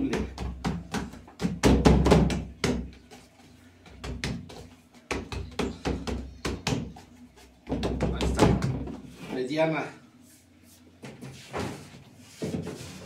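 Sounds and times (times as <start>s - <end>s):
hands patting dough on table: 0.0s - 9.0s.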